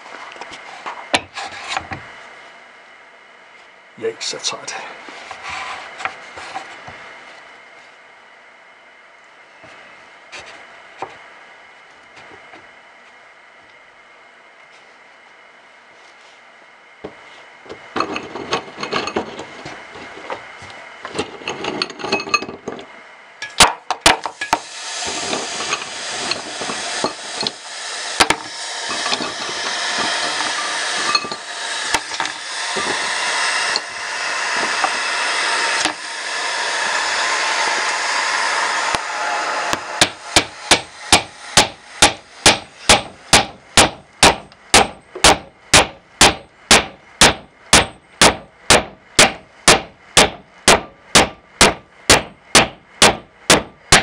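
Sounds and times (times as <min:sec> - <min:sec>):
hammer striking wood block: 0:28.2 - 0:28.6, 0:39.7 - 0:54.0.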